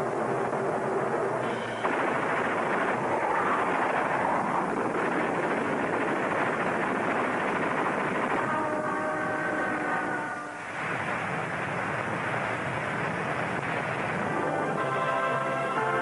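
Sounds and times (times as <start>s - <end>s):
rocket engine roar: 0.0s - 9.2s.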